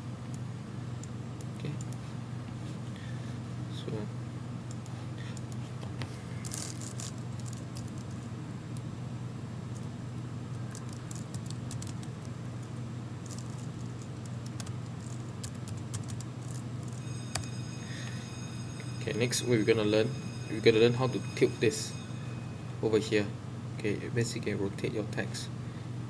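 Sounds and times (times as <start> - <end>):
steady low hum: 0.0 - 26.0
computer keyboard typing: 10.5 - 12.7, 13.3 - 17.5.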